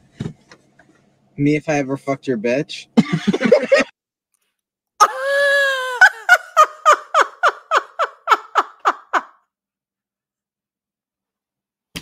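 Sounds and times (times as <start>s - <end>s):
woman bursting into laughter: 5.0s - 9.4s.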